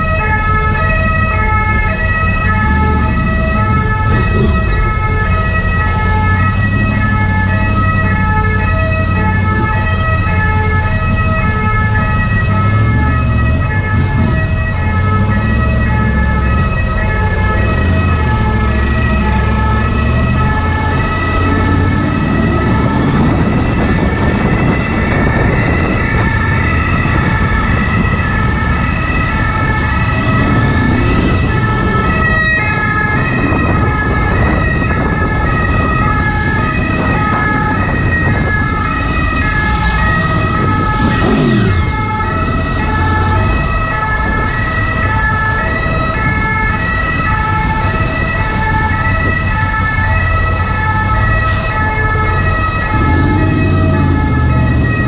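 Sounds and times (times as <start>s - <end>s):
two-tone ambulance siren: 0.0s - 55.0s
low rumble: 51.8s - 55.0s.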